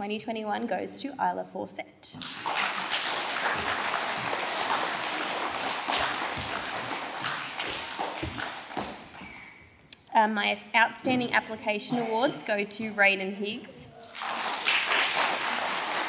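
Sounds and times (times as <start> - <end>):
audience applauding: 2.2 - 9.5, 14.0 - 16.0.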